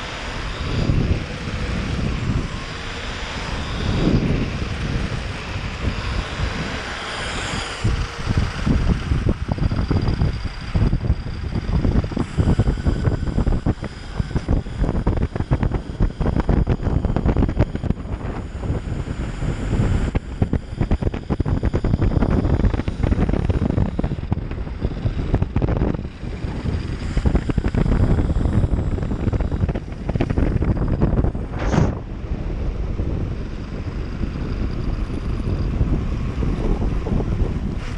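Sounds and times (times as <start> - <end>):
high-pitched motor whine: 0.0 - 37.9
tyres rumbling on asphalt: 0.0 - 37.9
wind buffeting microphone: 0.0 - 37.9.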